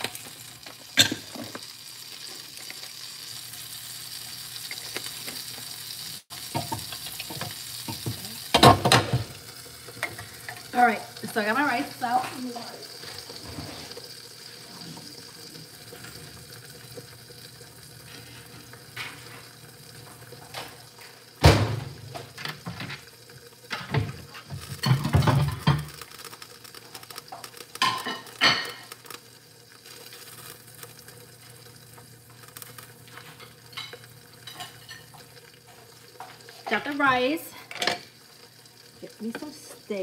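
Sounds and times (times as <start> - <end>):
plates pans and utensils clattering: 0.0 - 1.7, 6.4 - 10.7, 12.2 - 15.1, 18.0 - 19.6, 20.4 - 23.1, 23.7 - 26.1, 27.3 - 29.0, 33.1 - 36.9, 37.6 - 38.2
food frying on stove: 0.0 - 40.0.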